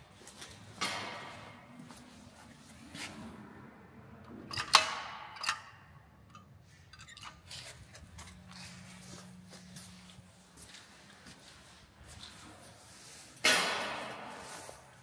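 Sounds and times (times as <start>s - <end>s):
elevator low hum: 7.1s - 12.9s.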